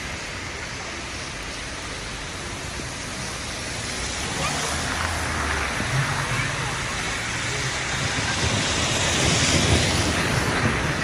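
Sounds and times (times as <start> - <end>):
heavy rain hissing: 0.0 - 11.0
car driving past on wet road: 2.9 - 11.0.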